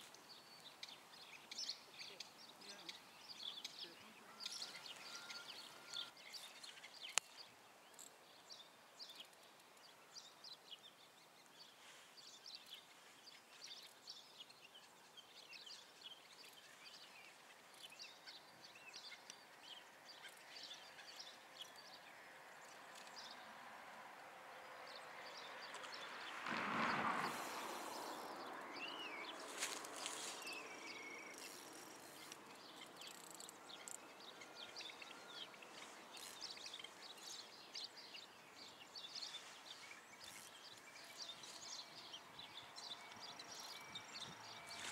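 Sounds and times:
small birds chirping: 0.0 - 23.6, 24.6 - 44.9
faint outdoor ambience: 0.0 - 44.9.

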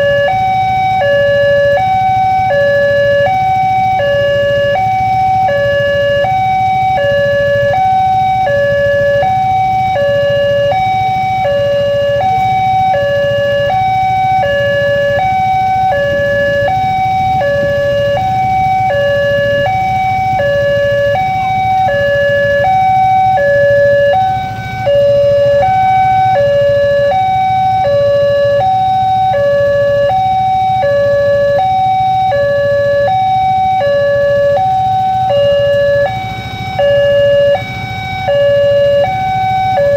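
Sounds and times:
level crossing alarm two-tone: 0.0 - 39.9.

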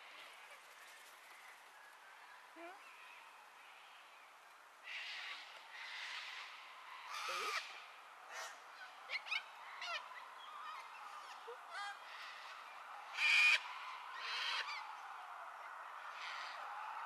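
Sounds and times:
cockatoo squawks: 7.1 - 7.7.

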